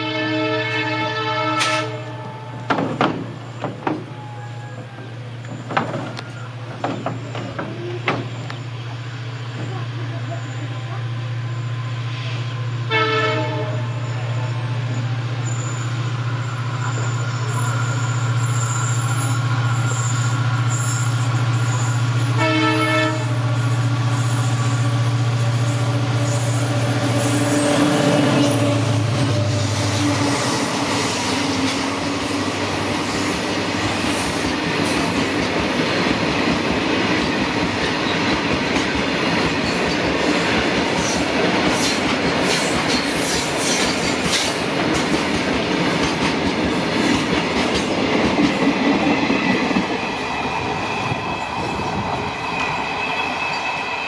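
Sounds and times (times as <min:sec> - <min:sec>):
locomotive horn: 0:00.0 - 0:02.7, 0:12.6 - 0:16.4, 0:22.2 - 0:23.9, 0:24.8 - 0:31.8
diesel locomotive engine droning: 0:00.0 - 0:54.0
wheels clicking over rail joints: 0:02.7 - 0:08.6.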